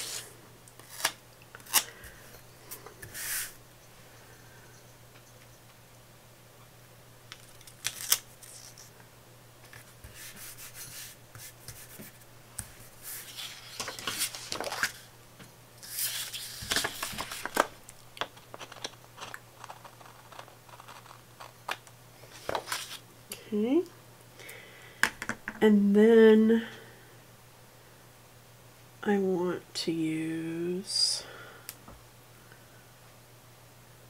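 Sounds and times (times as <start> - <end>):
paper pages rustling: 9.7 - 15.1, 15.8 - 23.0.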